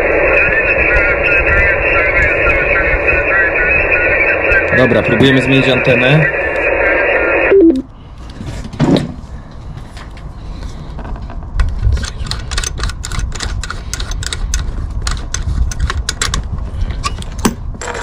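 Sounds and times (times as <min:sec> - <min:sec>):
low rumble: 0:00.0 - 0:04.8.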